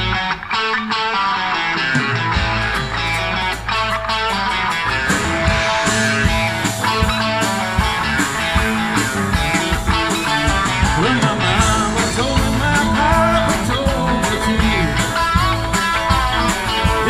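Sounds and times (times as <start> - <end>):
bass guitar: 0.0 - 17.0
electric guitar: 0.0 - 17.0
drum hits: 4.8 - 17.0.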